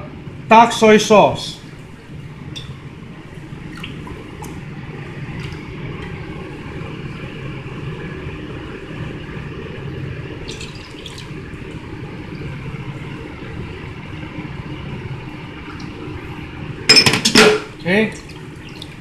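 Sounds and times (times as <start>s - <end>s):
liquid trickling into cup: 10.4s - 12.6s, 17.7s - 19.0s.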